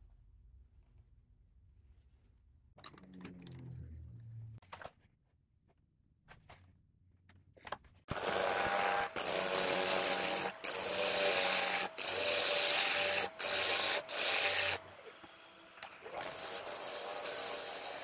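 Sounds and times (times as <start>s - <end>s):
power tool cutting wood: 8.1s - 18.0s.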